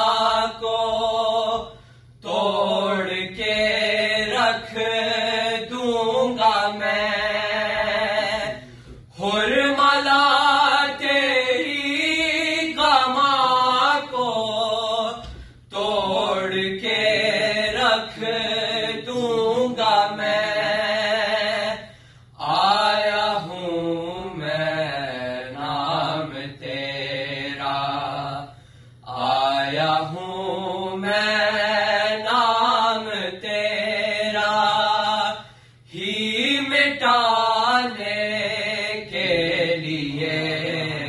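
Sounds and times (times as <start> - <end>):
men singing devotional elegy: 0.0 - 41.0.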